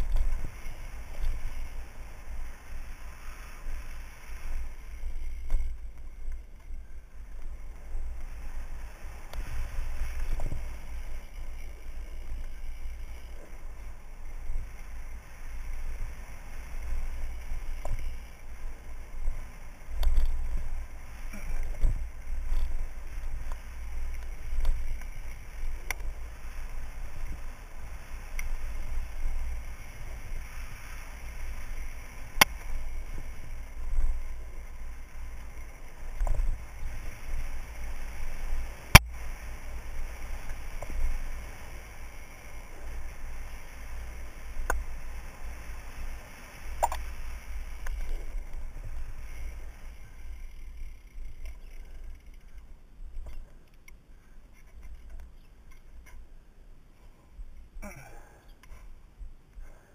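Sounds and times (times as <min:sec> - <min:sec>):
bike tyres rattling: 0:00.0 - 0:53.5
wind rumbling on microphone: 0:00.0 - 0:53.6
sharp clicks: 0:46.8 - 0:47.1.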